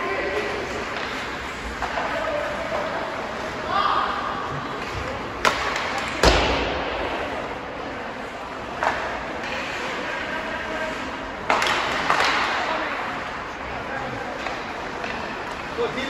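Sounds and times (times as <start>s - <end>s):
hockey stick hitting puck: 4.7s - 7.5s, 8.7s - 9.8s, 11.4s - 13.0s, 14.3s - 15.8s.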